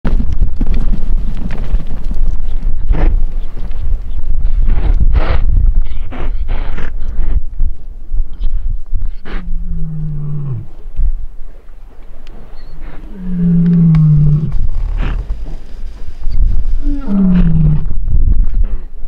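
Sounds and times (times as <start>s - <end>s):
low rumble: 0.1s - 19.0s
lion roaring: 9.2s - 10.8s, 12.8s - 15.3s, 16.8s - 18.0s.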